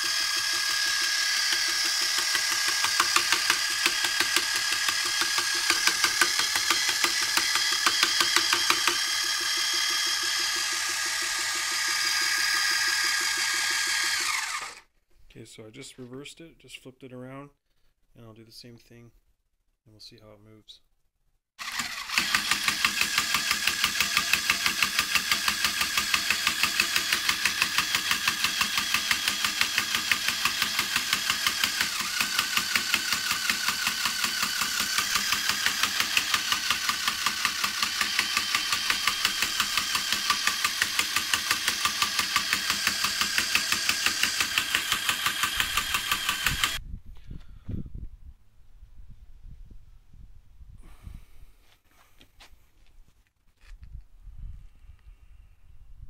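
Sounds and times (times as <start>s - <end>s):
small motor whirring with pulsing: 0.0s - 14.9s, 21.6s - 46.8s.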